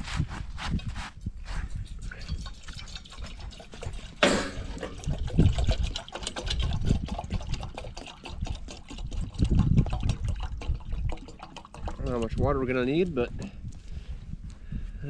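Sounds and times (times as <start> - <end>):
water pouring into a pot: 1.8 - 13.1.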